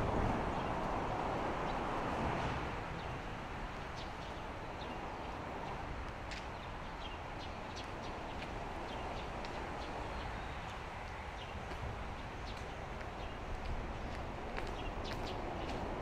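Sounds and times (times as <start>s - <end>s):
footsteps clicking: 11.0s - 16.0s.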